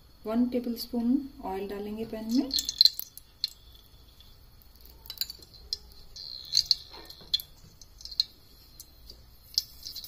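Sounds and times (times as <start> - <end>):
oil ticking and crackling: 2.0 - 10.0.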